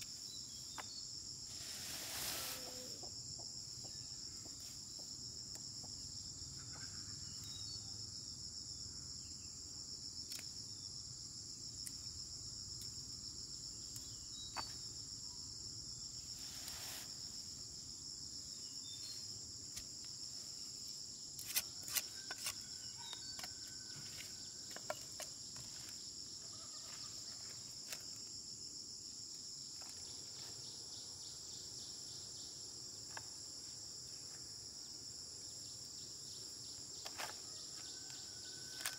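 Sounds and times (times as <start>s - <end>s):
insects droning: 0.0s - 38.9s
clicks and rustles of picking pods: 21.4s - 26.0s, 37.0s - 38.9s.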